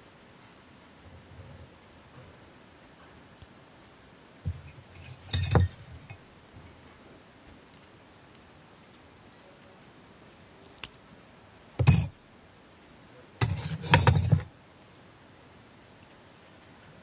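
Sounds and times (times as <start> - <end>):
metal tools scraping and rustling: 4.7 - 6.2, 11.8 - 12.1, 13.4 - 14.5
metal tool click: 5.0 - 5.8, 11.8 - 12.1, 13.4 - 14.4.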